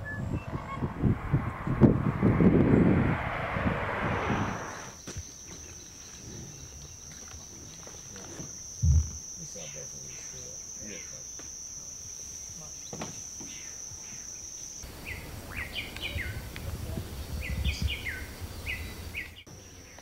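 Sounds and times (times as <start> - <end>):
low rumble: 0.0 - 5.0
high-pitched insect trill: 4.6 - 16.4.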